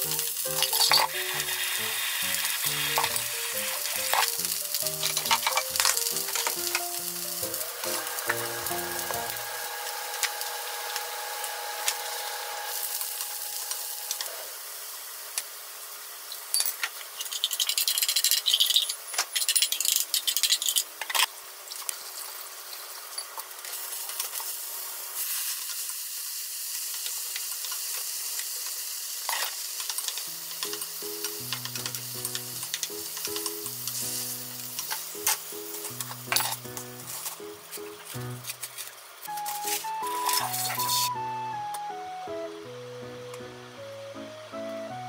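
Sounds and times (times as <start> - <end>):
light background music: 0.0 - 14.0, 30.3 - 38.6, 39.2 - 45.0
eggplant sizzling in a frying pan: 0.0 - 41.2.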